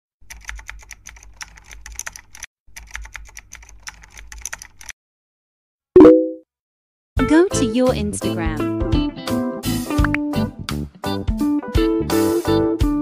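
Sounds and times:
computer keyboard typing: 0.2s - 4.9s.

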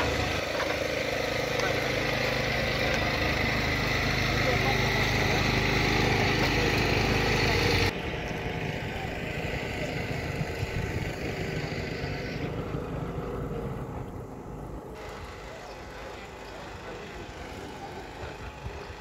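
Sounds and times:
engine idling: 0.0s - 19.0s
outdoor background noise: 0.0s - 19.0s
unsteady low rumble: 7.9s - 15.0s.

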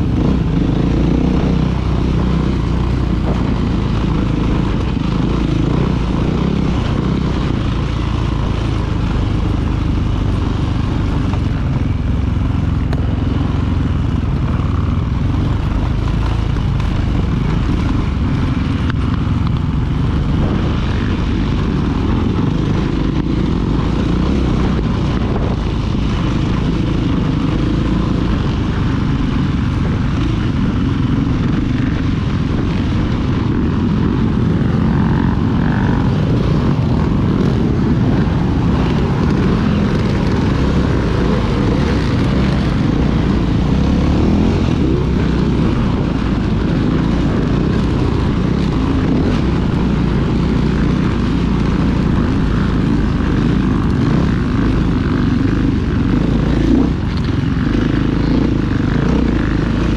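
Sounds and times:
dirt bike engine running: 0.0s - 59.9s.

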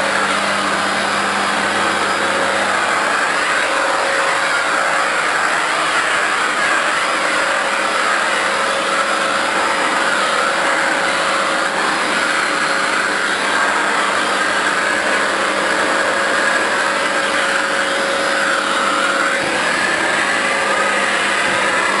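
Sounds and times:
vacuum cleaner running: 0.0s - 22.0s.

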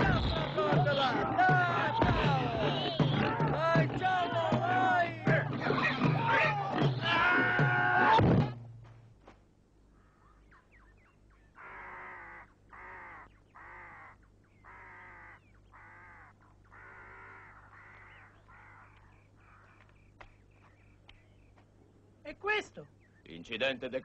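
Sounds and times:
bird cawing harshly: 11.6s - 19.8s.

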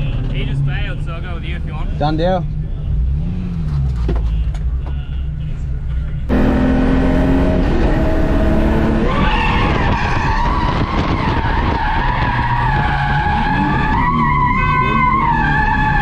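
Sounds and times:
car engine revving: 0.0s - 16.0s
tyres squealing: 9.0s - 16.0s.

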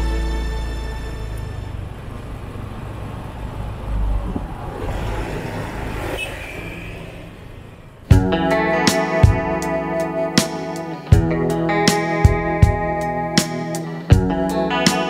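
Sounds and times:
guitar music: 0.0s - 2.0s, 8.0s - 15.0s
motorbike and car traffic: 0.0s - 15.0s.

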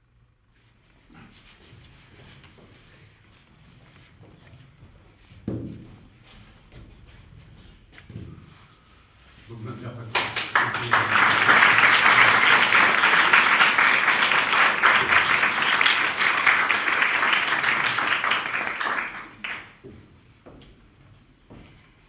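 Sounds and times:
audience applauding: 10.1s - 19.8s.

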